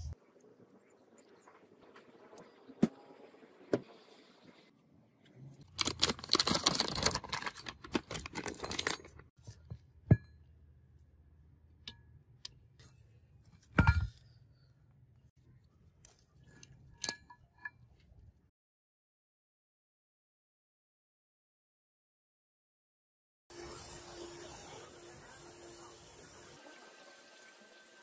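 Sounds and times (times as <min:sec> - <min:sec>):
paper rustling and crinkling: 0:05.7 - 0:09.2.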